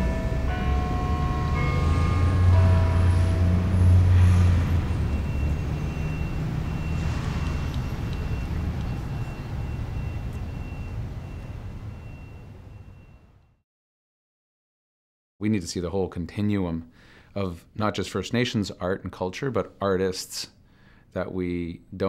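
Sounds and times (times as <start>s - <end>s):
low rumble of road traffic: 0.0s - 13.6s.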